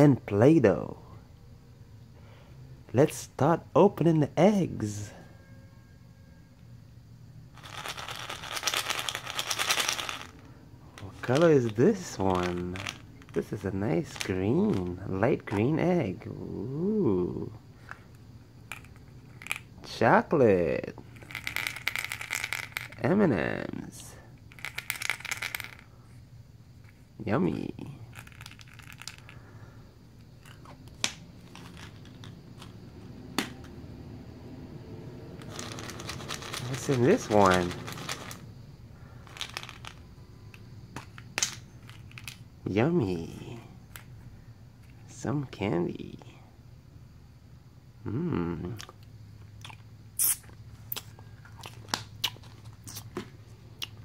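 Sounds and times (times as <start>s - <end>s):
candies rattling: 7.6s - 15.7s, 18.7s - 19.7s, 21.0s - 23.2s, 24.5s - 25.9s, 28.1s - 29.4s, 30.4s - 33.7s, 35.4s - 38.5s, 39.2s - 40.1s, 41.0s - 42.4s
plastic eggs clicking and knocking: 7.6s - 15.8s, 18.7s - 19.7s, 21.0s - 23.2s, 24.5s - 25.9s, 28.1s - 29.4s, 30.2s - 32.8s, 35.4s - 38.5s, 39.2s - 42.5s.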